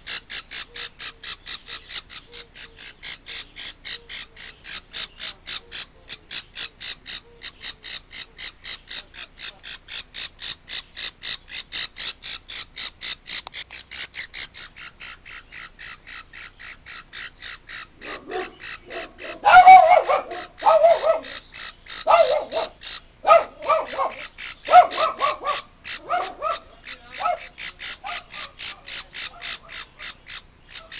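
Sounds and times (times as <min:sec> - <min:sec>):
parrot chick cheeping: 0:00.0 - 0:17.9
harsh bird cries: 0:00.0 - 0:30.9.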